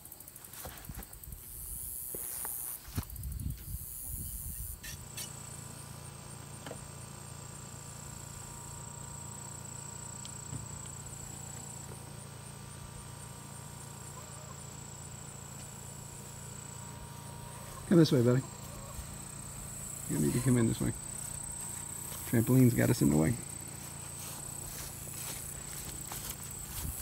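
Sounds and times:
insects buzzing: 0.0s - 27.0s
low steady hum: 7.5s - 27.0s.

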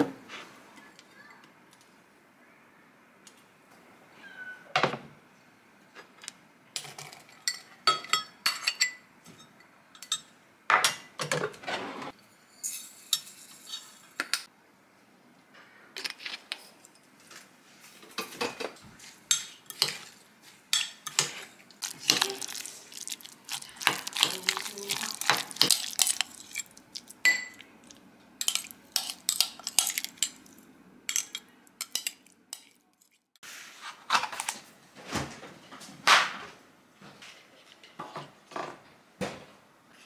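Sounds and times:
metal spoon clinking on glass: 20.7s - 27.6s, 28.4s - 32.8s.

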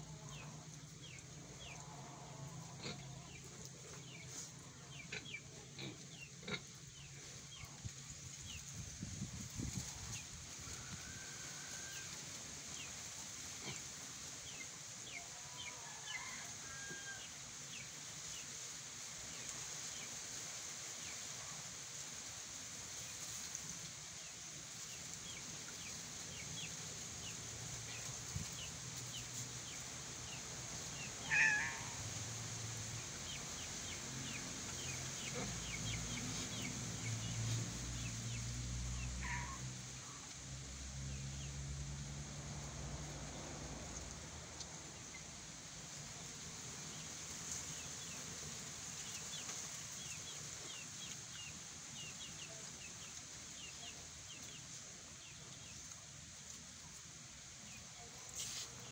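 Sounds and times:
steady high hiss: 6.8s - 39.1s.

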